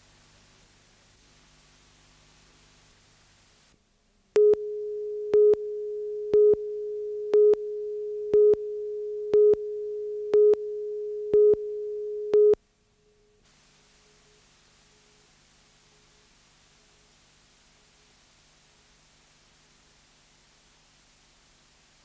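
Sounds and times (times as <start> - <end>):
short beeps: 4.4 - 12.6.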